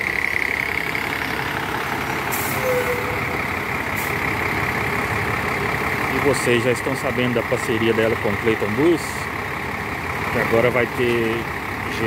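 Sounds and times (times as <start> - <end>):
bus diesel engine running: 0.0 - 12.0
air brake hisses: 2.3 - 3.2.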